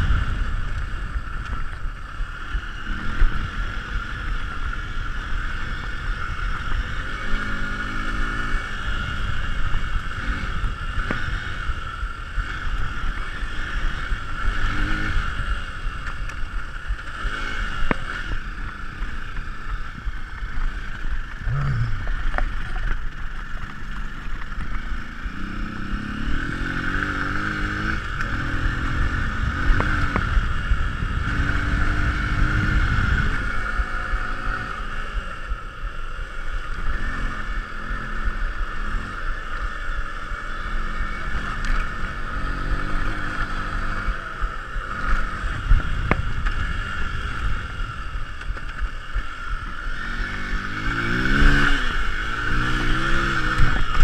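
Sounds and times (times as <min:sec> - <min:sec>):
wind noise on microphone: 0:00.0 - 0:04.2, 0:24.7 - 0:35.6, 0:43.5 - 0:54.0
motorcycle engine accelerating: 0:00.0 - 0:54.0.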